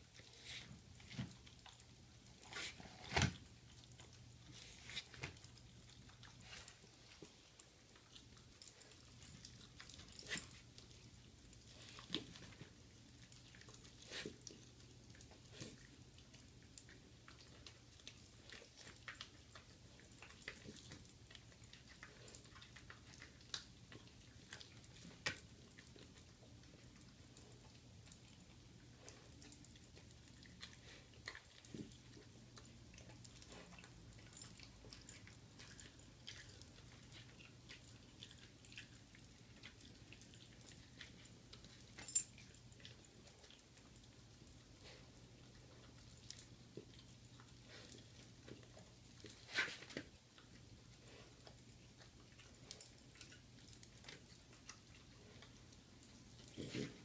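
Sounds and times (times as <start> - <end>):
dog chewing meat: 0.0 - 57.0.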